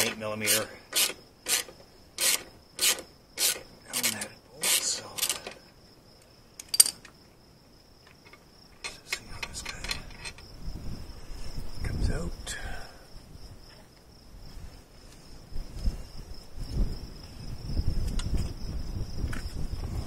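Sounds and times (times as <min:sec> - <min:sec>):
ratchet wrench rasping: 0:00.0 - 0:05.6
faint clicks of parts handled: 0:04.9 - 0:07.2, 0:08.0 - 0:10.5.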